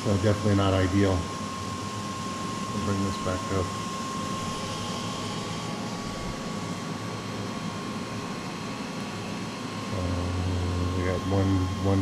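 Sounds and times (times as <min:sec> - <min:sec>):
printer whirring: 0:00.0 - 0:12.0
thin constant whine: 0:00.0 - 0:12.0.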